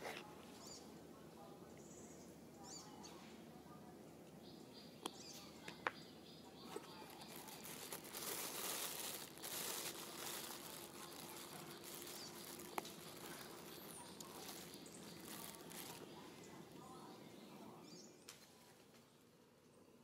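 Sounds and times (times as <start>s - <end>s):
rustling: 6.6s - 16.5s.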